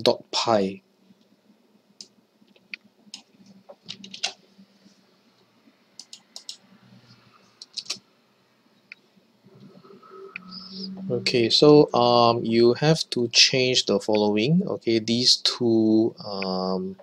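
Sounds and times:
computer mouse clicks: 6.0 - 6.6, 7.6 - 8.0
keyboard keystrokes: 7.6 - 8.0.

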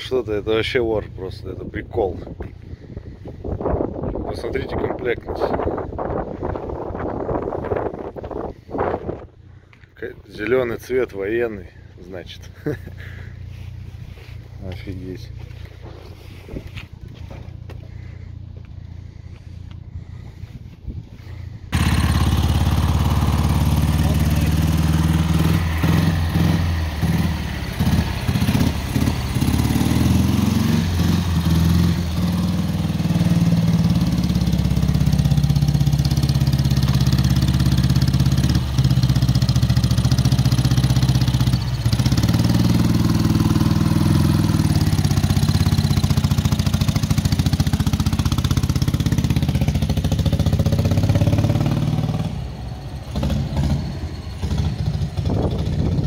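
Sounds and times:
motorcycle engine running: 12.6 - 56.0.

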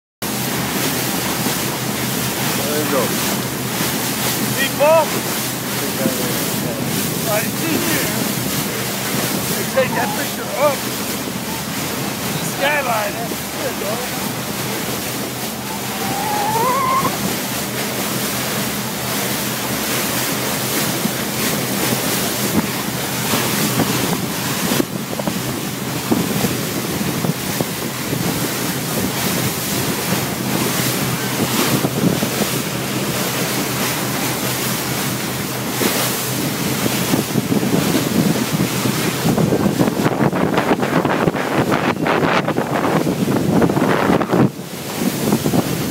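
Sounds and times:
water rushing past boat: 0.2 - 45.9
wind buffeting microphone: 2.4 - 19.4, 20.4 - 45.9
low engine drone: 5.5 - 23.6.

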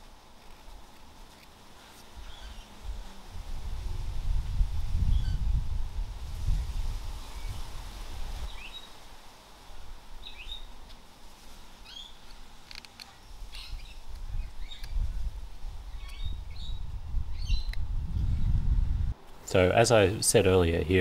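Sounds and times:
birds chirping: 1.8 - 2.8, 10.2 - 10.8, 11.8 - 12.3, 13.5 - 15.1, 15.9 - 18.6
knife paring wood clicks: 14.1 - 15.0.

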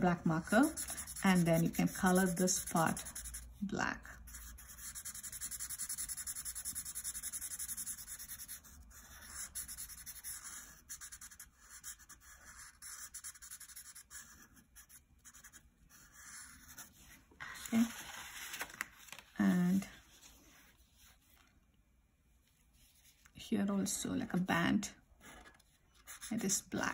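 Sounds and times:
marker scribbling on paper: 0.4 - 3.7, 4.3 - 17.1, 26.0 - 26.7.

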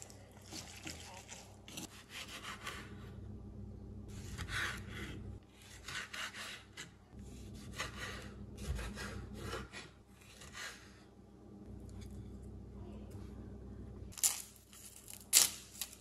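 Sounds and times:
knife sawing through tomato: 0.5 - 3.0, 4.2 - 6.9.

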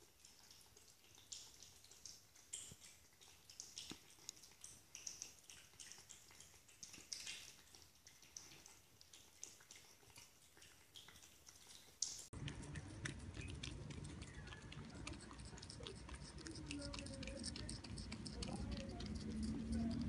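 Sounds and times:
cats chewing food: 0.0 - 20.0.

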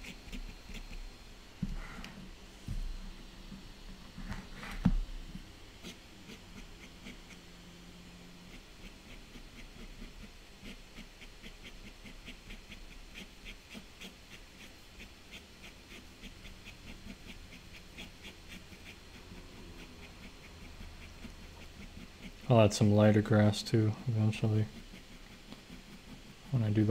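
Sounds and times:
pen scratching on paper: 0.0 - 1.1, 5.8 - 7.5, 8.5 - 26.9.

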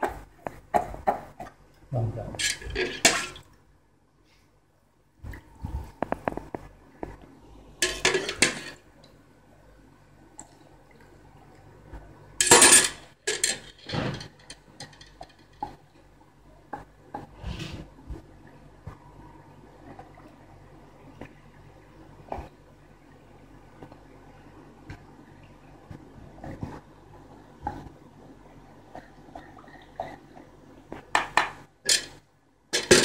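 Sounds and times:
water splashing from a ladle: 2.4 - 3.5.

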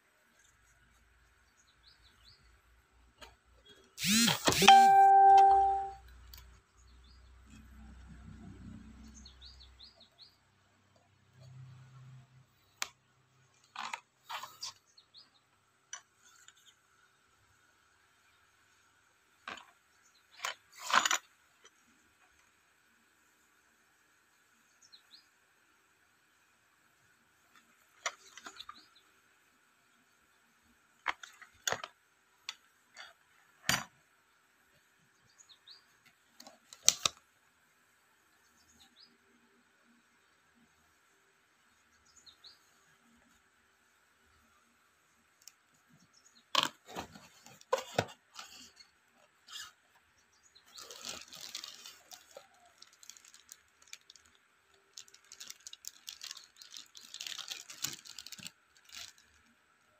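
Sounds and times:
paper and packaging crinkling: 50.7 - 59.4.

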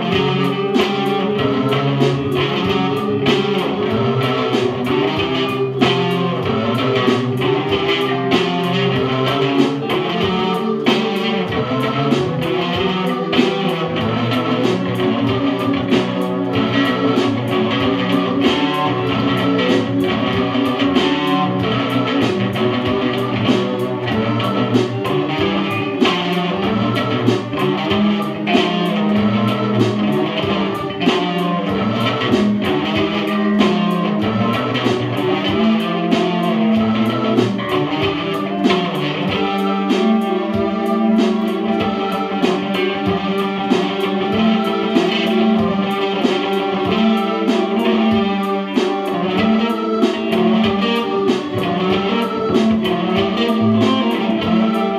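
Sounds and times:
electric guitar through amp: 0.0 - 54.9
electronic keyboard: 0.0 - 54.9.

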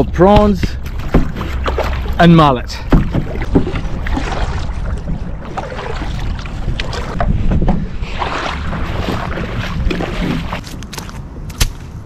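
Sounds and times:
kayak paddle splashing in water: 0.8 - 10.6
wind buffeting microphone: 2.8 - 11.5.

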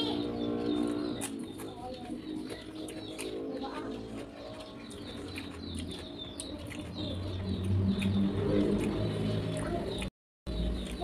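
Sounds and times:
chewing crispy fried potato: 1.2 - 11.0
wet mouth clicks: 4.9 - 10.1.

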